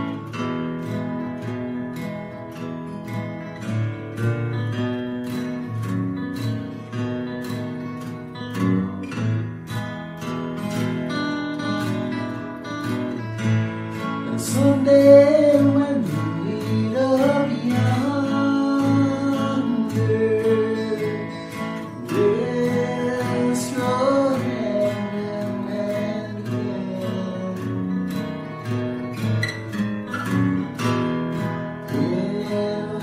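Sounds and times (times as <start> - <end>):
acoustic guitar strumming: 0.0 - 33.0
man singing: 14.1 - 28.3, 31.8 - 33.0.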